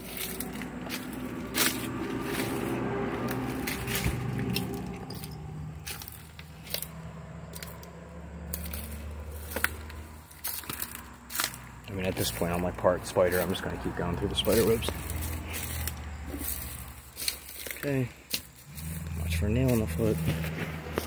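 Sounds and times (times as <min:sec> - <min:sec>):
twigs snapping and crunching: 0:00.0 - 0:19.1
footsteps through weeds and debris: 0:00.0 - 0:21.0
low hum: 0:18.6 - 0:21.0.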